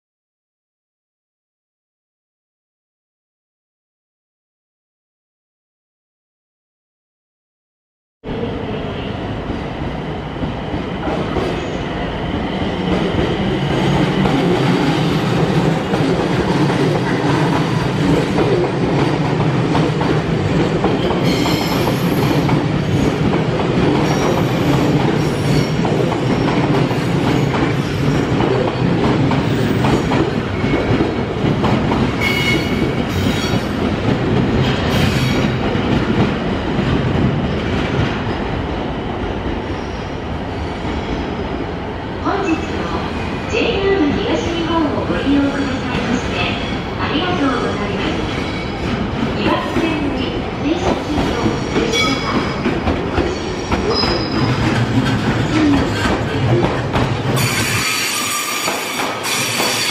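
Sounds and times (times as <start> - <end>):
train rumbling on track: 8.2 - 59.9
high wheel squeals: 57.4 - 59.9.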